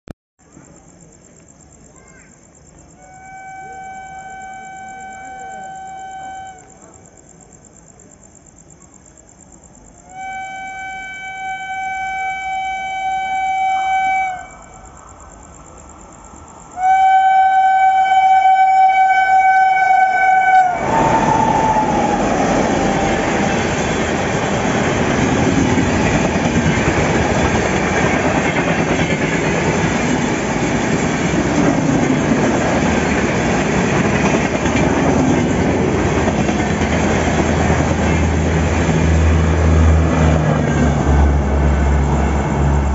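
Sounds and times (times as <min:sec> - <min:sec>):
locomotive horn blasts: 0:03.0 - 0:06.7, 0:10.1 - 0:14.8, 0:16.8 - 0:22.0
train passing at speed: 0:10.1 - 0:42.9.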